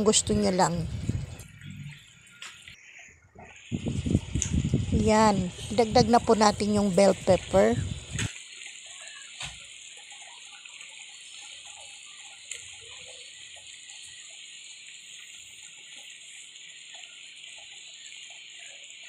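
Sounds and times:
stew simmering with hiss: 0.0 - 19.0.

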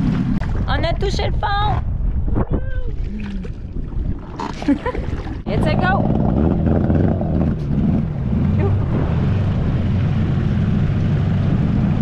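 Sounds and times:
outboard motor running: 4.3 - 11.8.

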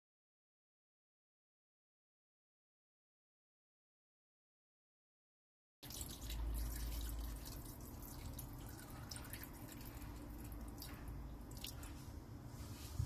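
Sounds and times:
water trickling into pan: 5.8 - 11.9.

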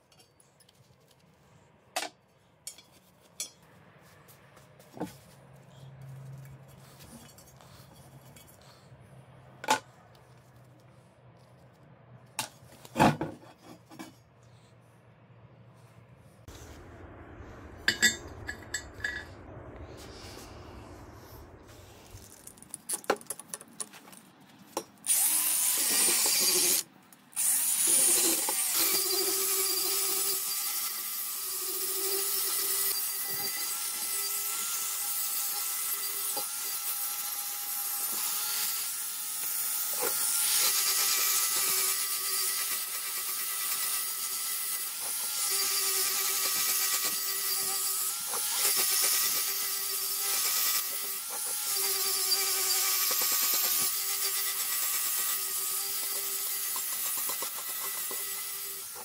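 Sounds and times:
angle grinder whining on steel: 25.0 - 59.0.

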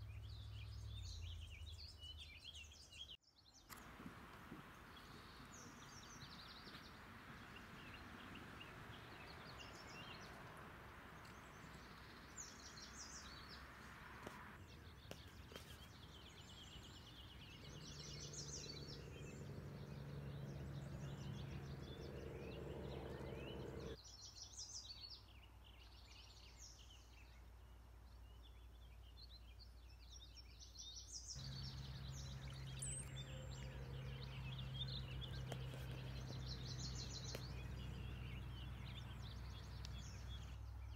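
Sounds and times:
birds chirping and singing: 14.7 - 25.1, 28.4 - 40.9
low steady hum: 16.7 - 24.0, 31.4 - 40.9.

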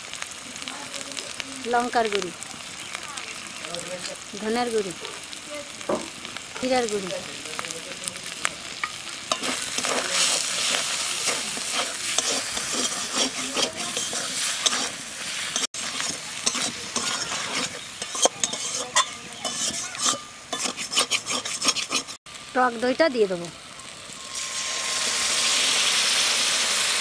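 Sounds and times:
spices sizzling in oil: 0.0 - 27.0
metal spatula scraping pan: 8.8 - 22.2.

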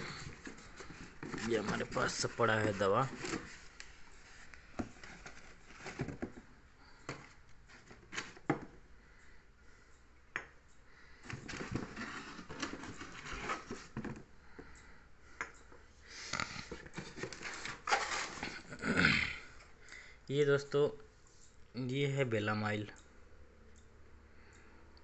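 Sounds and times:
boxes and vials clicking and rustling: 0.0 - 8.8, 11.1 - 14.8, 16.2 - 18.9.

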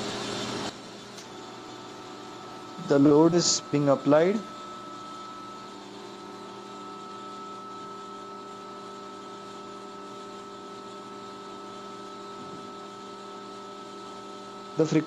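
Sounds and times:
steady electrical hum: 0.0 - 15.0
faint high whine: 2.3 - 10.4.

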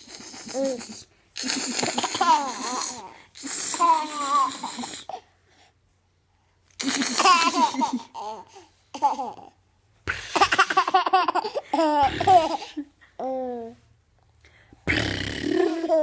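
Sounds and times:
baby giggling: 0.1 - 5.2, 6.8 - 9.5, 10.2 - 13.6, 15.4 - 16.0.

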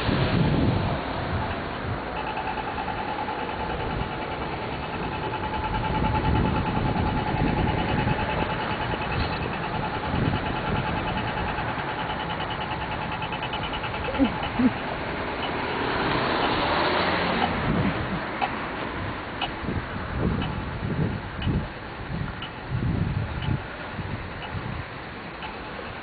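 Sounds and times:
city traffic: 0.0 - 26.0
steady high tone: 0.9 - 17.6
fast pulsing beep: 2.1 - 15.7, 25.4 - 26.0.

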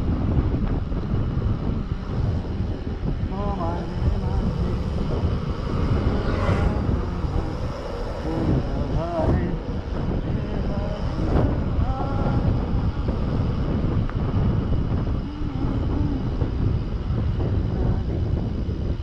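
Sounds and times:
bike tyres rolling on asphalt: 0.0 - 19.0
wind buffeting microphone: 0.0 - 19.0.

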